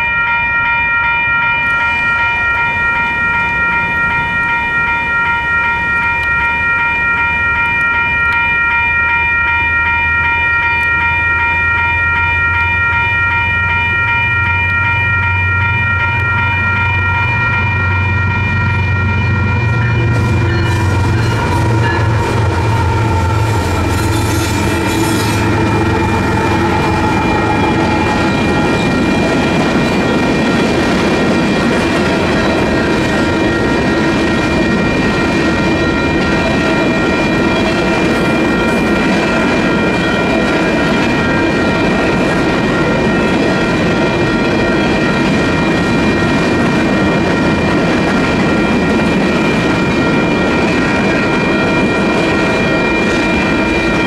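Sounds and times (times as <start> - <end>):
crossing bell ringing: 0.0 - 54.0
locomotive engine: 10.8 - 54.0
train wheels clattering over rails: 20.1 - 54.0.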